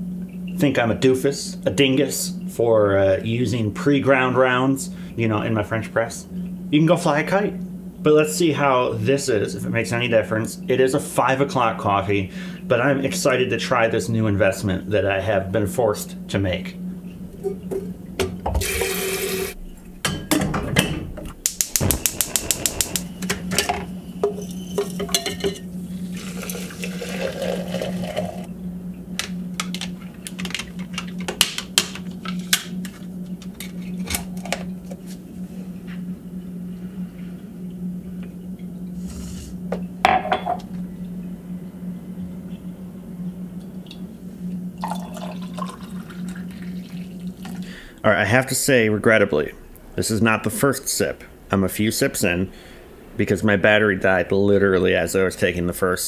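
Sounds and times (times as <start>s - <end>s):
steady low hum: 0.0s - 56.0s
dishes and utensils clinking: 23.5s - 25.7s.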